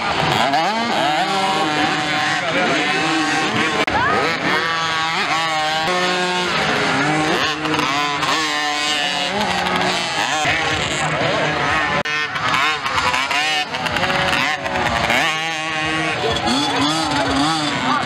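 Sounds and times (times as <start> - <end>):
mini motocross bikes revving: 0.0 - 18.0.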